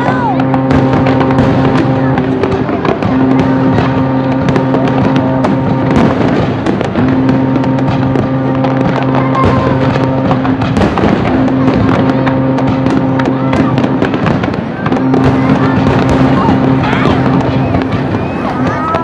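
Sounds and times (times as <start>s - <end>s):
fireworks bursting and crackling: 0.0s - 19.0s.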